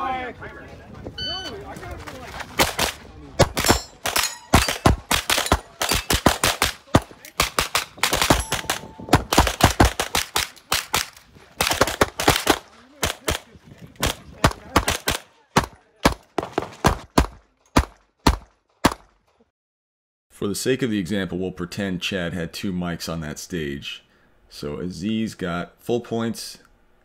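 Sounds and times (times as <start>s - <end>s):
pistol shots: 2.6s - 19.2s.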